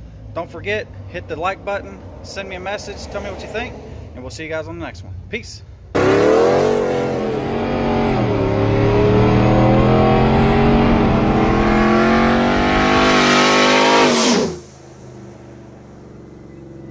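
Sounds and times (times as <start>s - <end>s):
pickup truck accelerating past: 6.0s - 16.9s.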